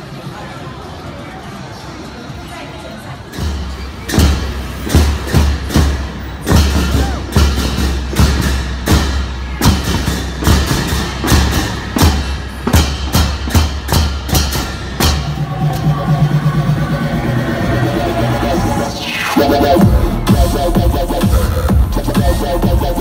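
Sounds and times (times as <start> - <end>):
drums striking: 3.3 - 23.0.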